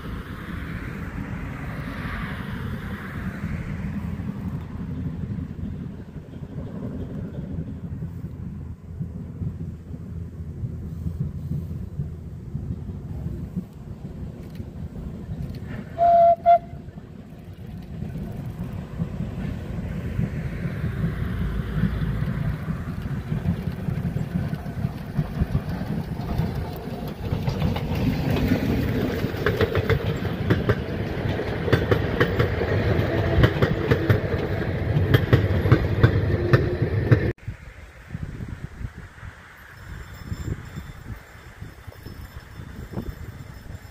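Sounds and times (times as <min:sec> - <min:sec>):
steam locomotive running: 0:00.0 - 0:37.4, 0:38.4 - 0:43.9
wheels clattering over rail joints: 0:09.0 - 0:37.3
steam train whistle toots: 0:15.8 - 0:16.9.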